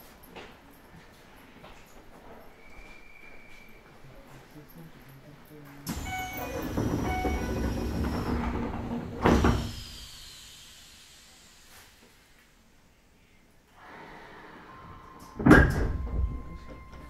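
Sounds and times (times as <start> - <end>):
heavy door thud: 5.9 - 9.9, 15.4 - 17.0
train door engine whine: 5.9 - 11.6, 13.8 - 17.0
air hiss: 9.2 - 12.6.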